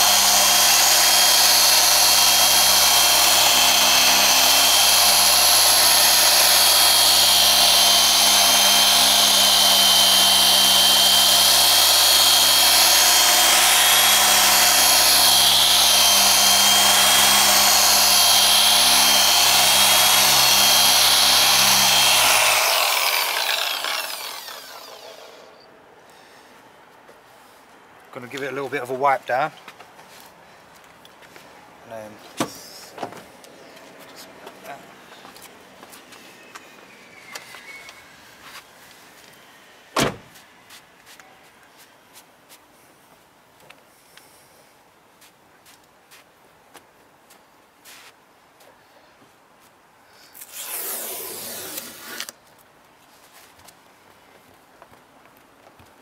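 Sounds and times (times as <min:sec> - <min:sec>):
polisher running: 0:00.0 - 0:25.5.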